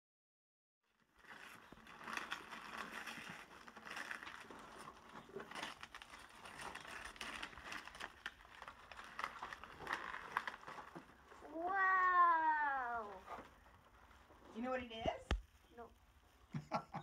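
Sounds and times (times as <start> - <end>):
wrapping paper tearing and crinkling: 0.9 - 14.9.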